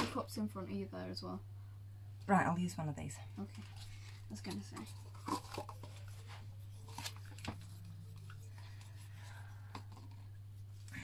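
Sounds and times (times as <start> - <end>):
steady low hum: 0.0 - 11.0
plastic cups clicking: 4.5 - 6.2, 6.8 - 10.3.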